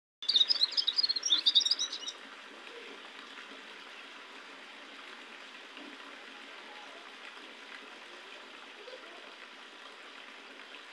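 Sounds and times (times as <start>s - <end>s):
songbird twittering: 0.2s - 2.2s.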